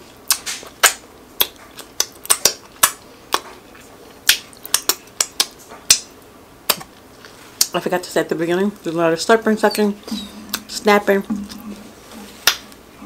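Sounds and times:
wet lip smacks and pops: 0.3s - 3.6s, 4.2s - 7.8s.

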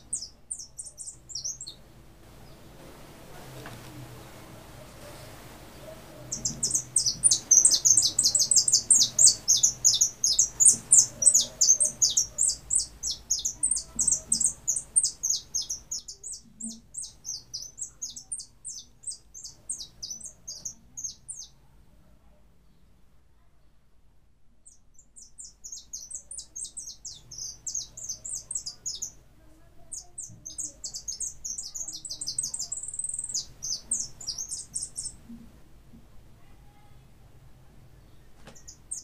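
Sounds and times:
finch chirping: 0.0s - 1.8s, 5.7s - 21.6s, 24.6s - 29.2s, 29.9s - 35.4s, 38.5s - 39.0s.

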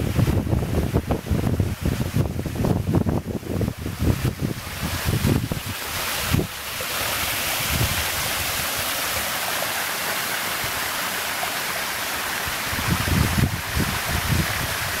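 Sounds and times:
low rumbling on microphone: 0.0s - 6.5s
waterfall rushing over rock: 0.0s - 15.0s.

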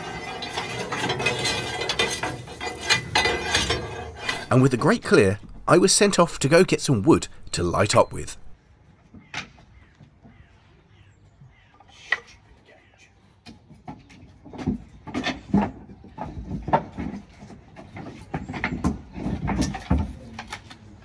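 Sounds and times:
wooden planks clattering and knocking: 0.0s - 8.5s, 13.4s - 21.0s.

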